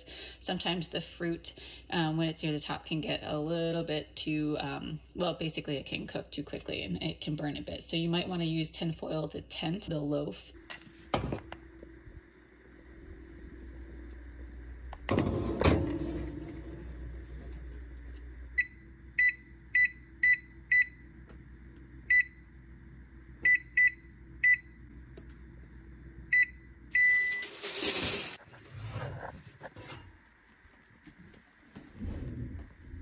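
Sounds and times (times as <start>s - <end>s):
oven keypad beeps: 18.6s - 21.0s, 22.1s - 22.5s, 23.4s - 24.8s, 26.3s - 27.8s.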